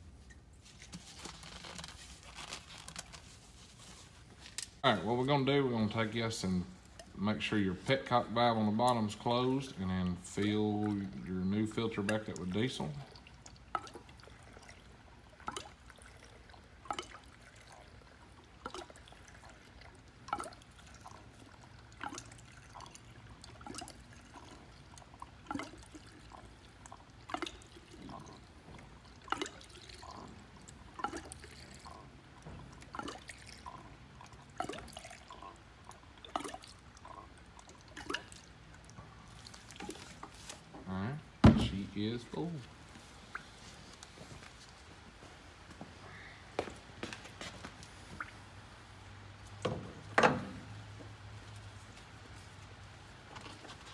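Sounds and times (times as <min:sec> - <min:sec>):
liquid trickling: 0:00.1 - 0:44.8, 0:47.7 - 0:53.9
fuel glugging from jug: 0:06.7 - 0:41.4, 0:49.3 - 0:53.9.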